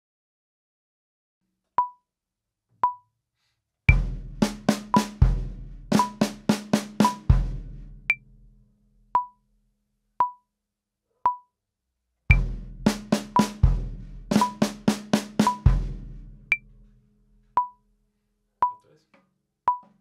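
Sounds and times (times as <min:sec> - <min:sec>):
bass drum: 0:03.9 - 0:08.6, 0:12.3 - 0:17.1
snare drum strokes: 0:04.4 - 0:05.2, 0:05.9 - 0:07.4, 0:12.3 - 0:15.9
metronome clicking: 0:06.0 - 0:06.3, 0:07.0 - 0:07.2, 0:09.2 - 0:09.4, 0:10.2 - 0:10.4, 0:11.3 - 0:11.5, 0:14.4 - 0:14.7, 0:15.4 - 0:15.7, 0:17.6 - 0:17.8, 0:18.6 - 0:18.8.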